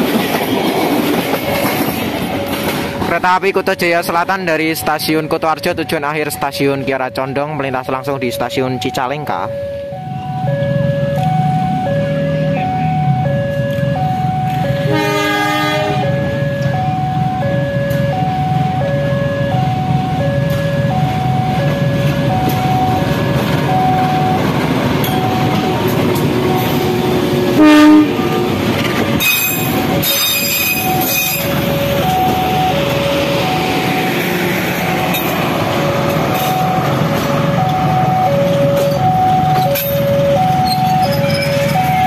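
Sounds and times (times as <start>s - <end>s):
train engine and wheel rumble: 0.0s - 42.0s
locomotive horn blast: 14.8s - 16.3s, 25.8s - 28.6s
wheel screech: 29.2s - 31.5s, 40.5s - 42.0s.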